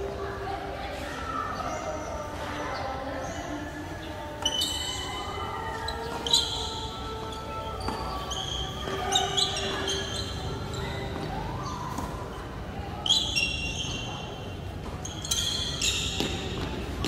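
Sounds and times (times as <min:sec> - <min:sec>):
sneakers squeaking on court: 0:04.2 - 0:17.0
rackets hitting tennis ball: 0:05.9 - 0:14.0, 0:14.7 - 0:17.0
tennis ball bouncing: 0:07.2 - 0:10.2, 0:11.9 - 0:12.4, 0:14.8 - 0:17.0.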